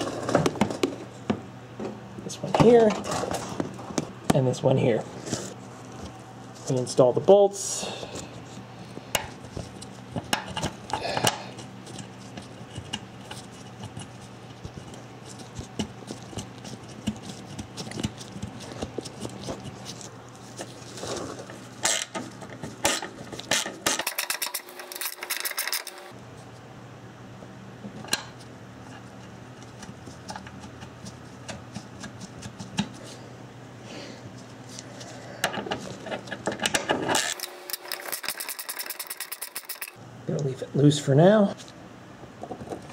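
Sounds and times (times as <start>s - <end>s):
ratchet clicks: 37.2s - 40.0s.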